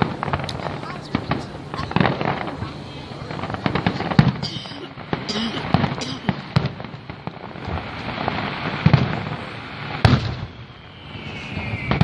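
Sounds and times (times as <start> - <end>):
fireworks crackle: 0.0 - 12.0
falling firework whistle: 6.5 - 12.0.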